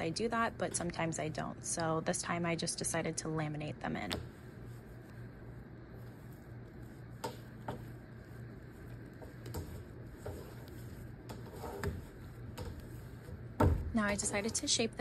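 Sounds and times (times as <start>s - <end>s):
low steady hum: 0.0s - 15.0s
hands shaping dough: 3.9s - 15.0s.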